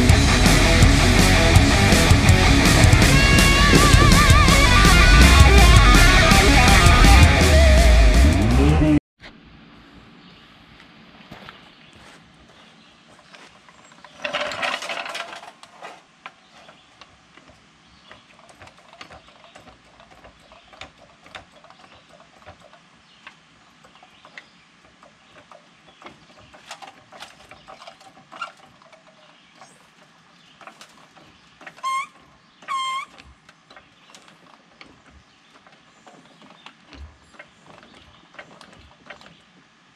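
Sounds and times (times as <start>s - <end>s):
floor jack scraping over dirt: 0.0s - 8.8s, 13.8s - 20.7s
jack handle squeaks: 2.7s - 7.4s, 23.9s - 29.9s, 30.6s - 39.5s.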